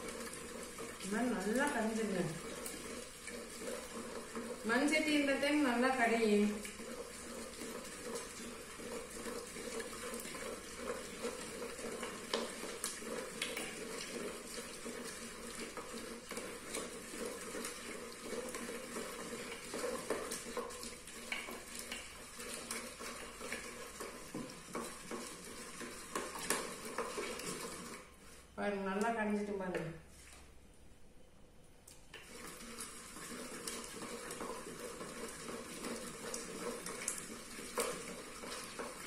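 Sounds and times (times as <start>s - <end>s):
mashing greens: 0.0s - 30.5s, 32.1s - 39.0s.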